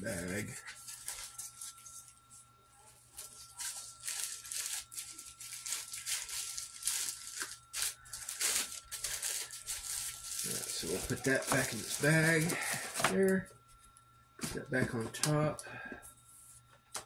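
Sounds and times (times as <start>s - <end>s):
bag rustling and crinkling: 3.2s - 13.0s.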